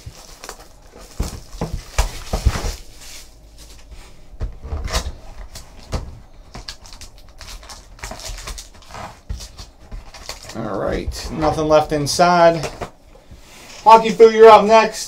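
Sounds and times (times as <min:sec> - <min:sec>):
shrink wrap crinkling: 0:00.0 - 0:04.1, 0:04.9 - 0:12.9.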